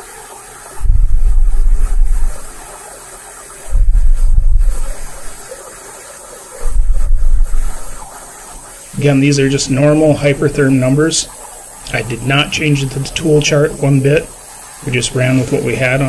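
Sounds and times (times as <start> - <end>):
loud low rumbles: 0.8 - 2.5, 3.6 - 5.2, 6.6 - 8.0
plasma torch hissing: 0.8 - 2.7, 3.6 - 5.6, 6.5 - 16.0.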